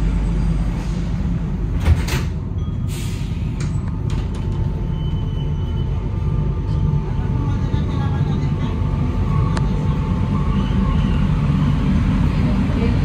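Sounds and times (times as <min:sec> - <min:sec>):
train low hum: 0:00.0 - 0:13.0
sliding doors closing: 0:00.7 - 0:05.4.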